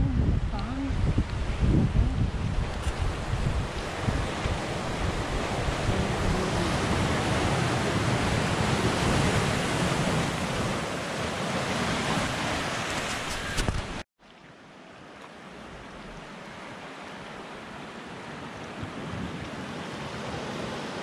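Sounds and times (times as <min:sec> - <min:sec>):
wind gusting on microphone: 0:00.0 - 0:14.0.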